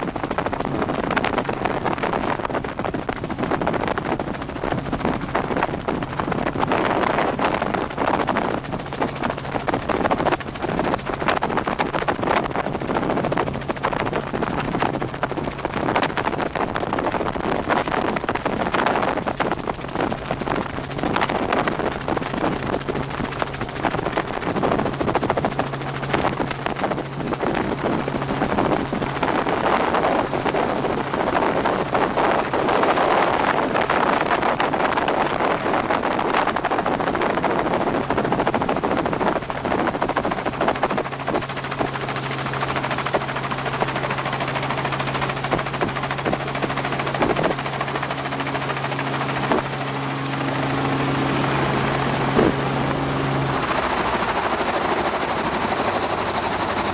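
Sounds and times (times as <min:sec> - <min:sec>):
constant low hum: 0:00.0 - 0:56.9
helicopter engine and rotor: 0:00.0 - 0:56.9.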